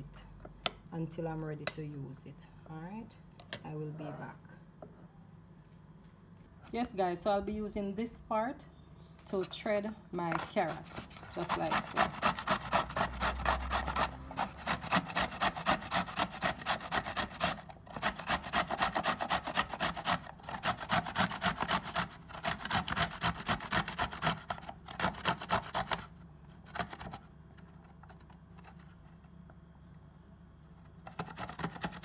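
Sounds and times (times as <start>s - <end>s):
carrot scraping on a grater: 10.2s - 27.2s, 31.0s - 32.0s.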